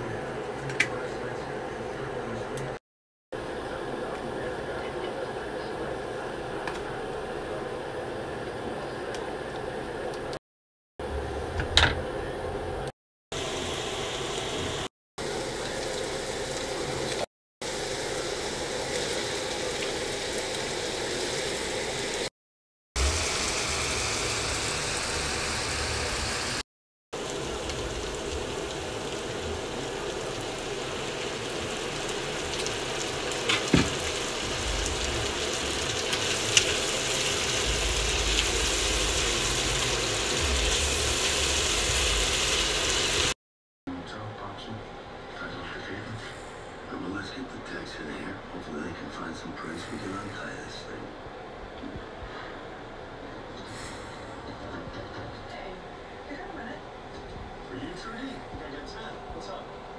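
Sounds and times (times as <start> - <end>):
food sizzling in oil: 13.4 - 22.3, 23.0 - 26.6, 27.2 - 43.4.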